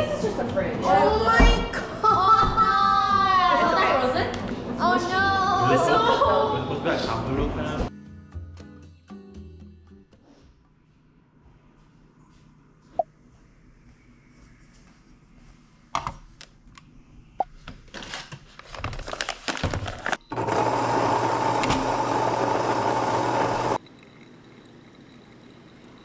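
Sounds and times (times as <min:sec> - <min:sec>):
paper bag of coffee beans rustling: 0:17.9 - 0:20.2
electric coffee grinder running: 0:20.3 - 0:23.8.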